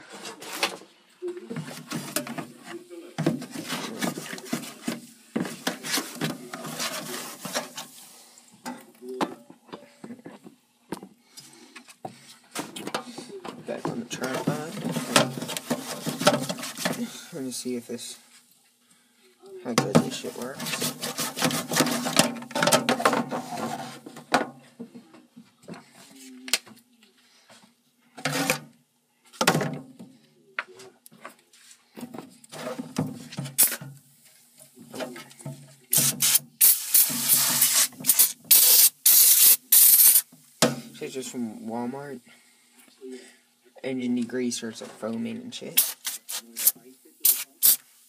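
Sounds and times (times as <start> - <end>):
plastic part scrubbed in solvent: 20.2 - 22.2.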